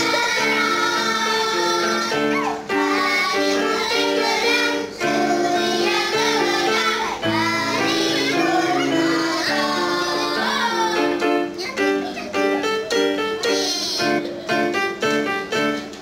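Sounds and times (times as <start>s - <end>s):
girls singing together: 0.0s - 11.6s
electronic keyboard: 0.0s - 16.0s.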